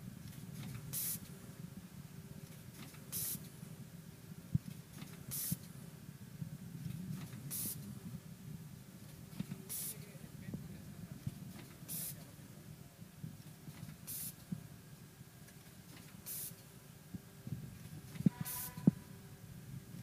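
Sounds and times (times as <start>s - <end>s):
low machine hum: 0.0s - 20.0s
compressed air hiss: 0.9s - 1.3s, 3.1s - 3.6s, 5.2s - 5.7s, 7.5s - 7.9s, 9.6s - 10.1s, 11.9s - 12.3s, 14.0s - 14.4s, 16.2s - 16.6s, 18.1s - 18.9s.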